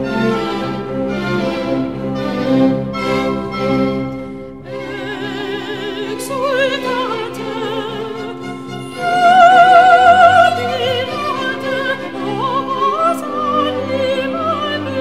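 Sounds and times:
orchestra with strings: 0.0 - 15.0
operatic voice singing: 4.7 - 15.0.

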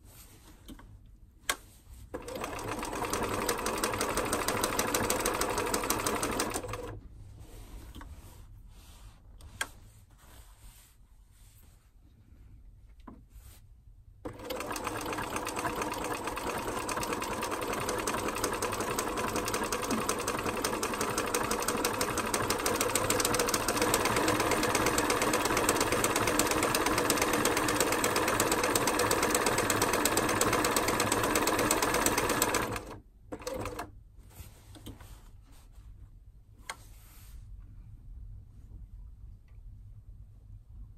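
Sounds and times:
sewing machine stitching: 2.2 - 7.0, 14.3 - 33.9.

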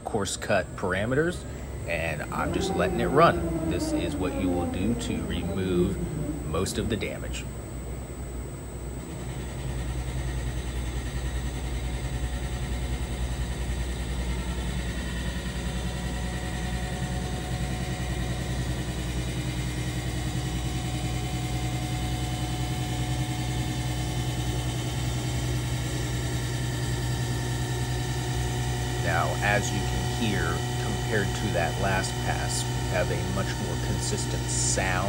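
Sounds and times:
lathe spindle hum: 0.0 - 35.0
lathe cutting metal wheel: 1.1 - 7.4, 27.6 - 35.0.

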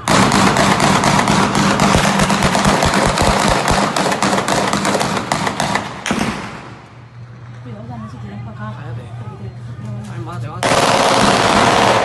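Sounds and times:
automatic gunfire: 0.0 - 6.7, 10.6 - 12.0.

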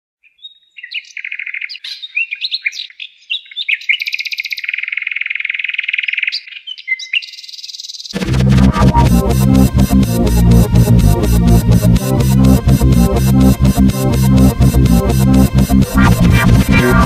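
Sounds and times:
bird chirps and trills: 0.2 - 8.2.

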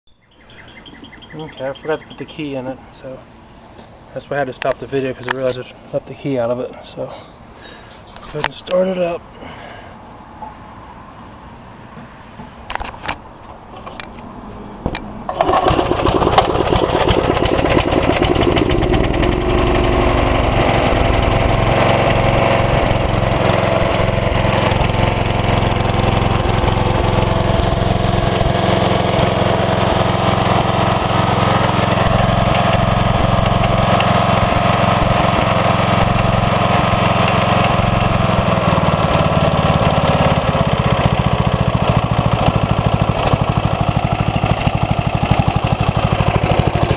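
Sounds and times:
mower engine running: 15.3 - 46.9.

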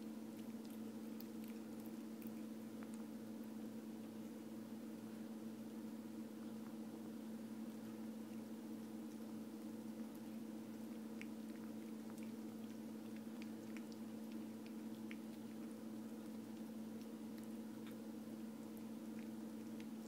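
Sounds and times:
steady low hum: 0.0 - 20.0
cat chewing clicks: 0.3 - 3.2, 7.8 - 20.0.

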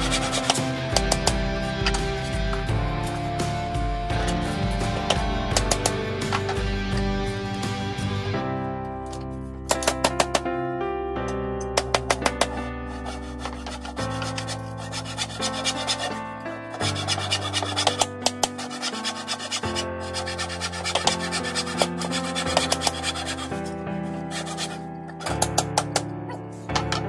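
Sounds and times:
hand saw cutting wood: 0.0 - 2.4, 12.3 - 26.0
background music chords: 0.0 - 27.0.

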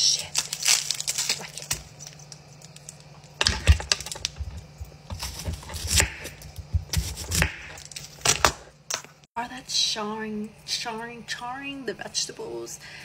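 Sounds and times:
onion being peeled: 0.0 - 8.7
knife cutting on wooden board: 4.6 - 7.8.

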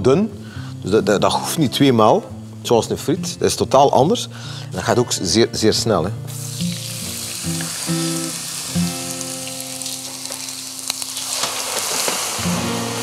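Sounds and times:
soft background music: 0.0 - 13.0
potatoes sizzling in hot oil: 6.3 - 13.0.

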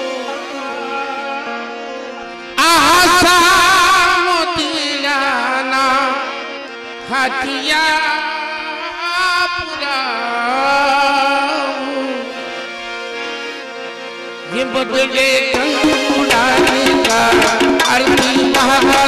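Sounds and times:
person singing with vibrato: 0.0 - 12.5, 14.4 - 19.0
held instrumental notes: 12.3 - 19.0.

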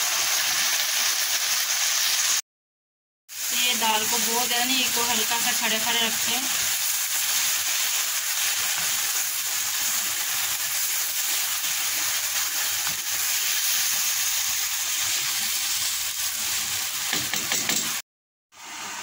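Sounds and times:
lentils sizzling in hot oil: 0.0 - 2.4, 3.3 - 18.0.

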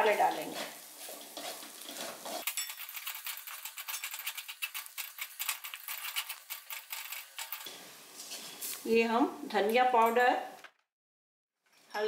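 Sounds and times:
spatula scraping a metal pan: 0.5 - 8.7.

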